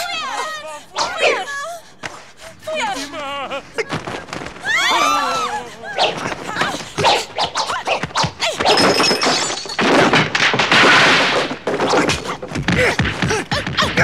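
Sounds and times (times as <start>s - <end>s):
punches and whacks: 6.0s - 9.0s, 9.8s - 14.0s
wooden chairs smashing: 8.5s - 14.0s.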